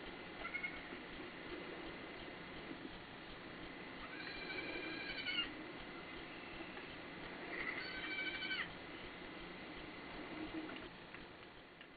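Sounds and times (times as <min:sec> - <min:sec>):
baby goat bleating: 0:00.4 - 0:00.9, 0:04.0 - 0:05.5, 0:07.5 - 0:08.7.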